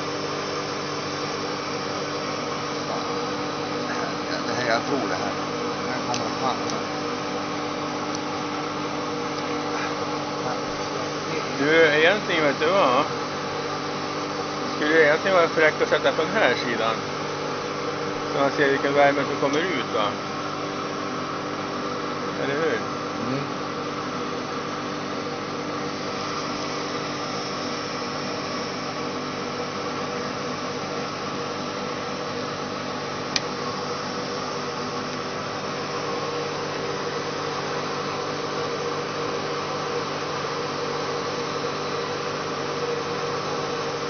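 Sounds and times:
blower fan humming: 0.0 - 44.0.

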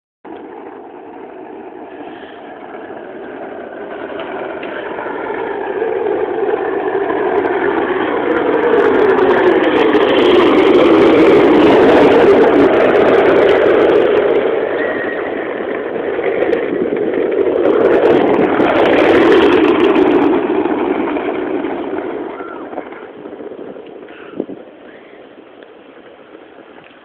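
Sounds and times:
skateboard wheels rolling on asphalt: 0.3 - 27.0.

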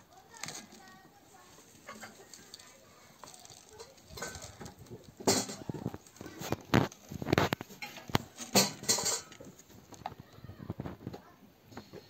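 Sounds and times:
grain rattling onto metal tray: 1.8 - 9.6.

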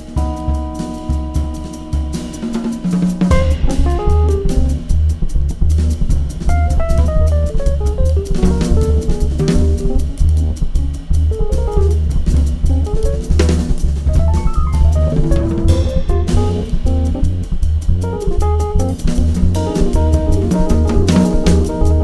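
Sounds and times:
double bass line: 0.0 - 22.0
drum kit with cymbals: 0.0 - 22.0
quick single-note melody: 14.1 - 17.0.

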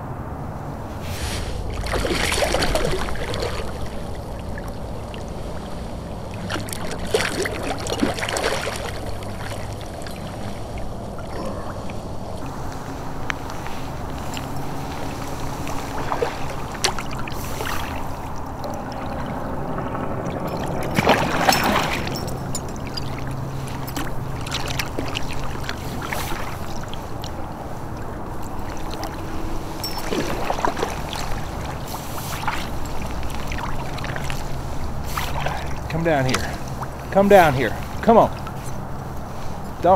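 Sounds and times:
steady low rumble: 0.0 - 39.9
water lapping against kayak hull: 0.9 - 39.9.

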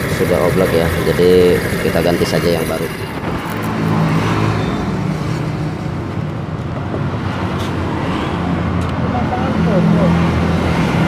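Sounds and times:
scooter engine running: 0.0 - 6.7.

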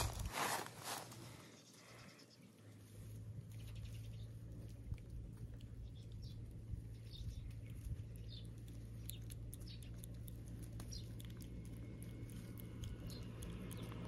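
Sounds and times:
kitten licking wet clicks: 3.3 - 14.0.

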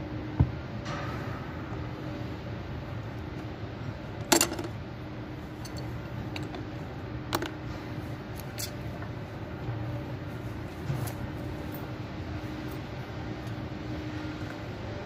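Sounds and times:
steady low hum: 0.0 - 15.0
metal tools clinking: 5.6 - 6.5, 8.4 - 8.8.

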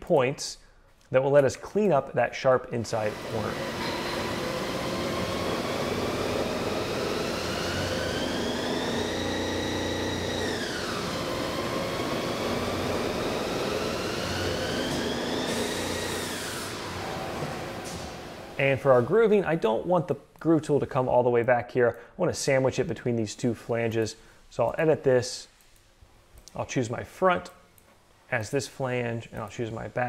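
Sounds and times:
coolant spray hissing: 3.0 - 18.8
lathe whine: 3.0 - 19.1.

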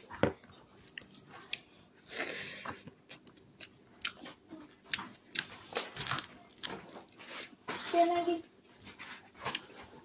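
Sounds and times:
chewing: 0.0 - 1.7, 2.6 - 7.5.

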